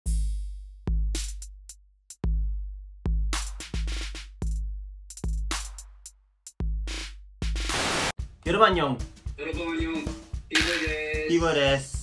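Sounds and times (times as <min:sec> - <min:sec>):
electronic drum machine beat: 0:03.1 - 0:12.0.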